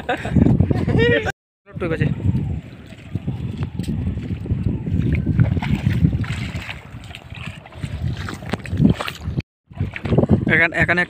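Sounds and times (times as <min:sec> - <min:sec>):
wind buffeting microphone: 0:00.0 - 0:11.0
splashing steps in water: 0:02.8 - 0:10.4.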